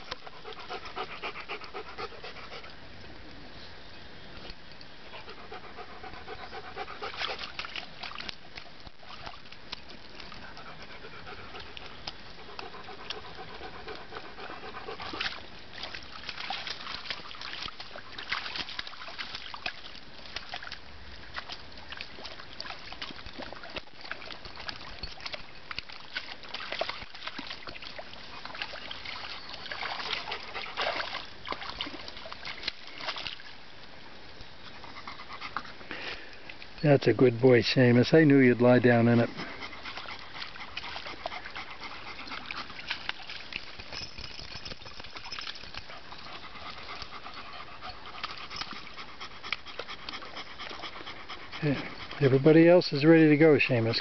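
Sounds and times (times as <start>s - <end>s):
dogs panting: 0.0s - 2.8s, 5.0s - 7.6s, 10.3s - 15.5s, 28.2s - 31.3s, 34.7s - 36.3s, 38.3s - 54.0s
water splashing and trickling: 0.0s - 54.0s.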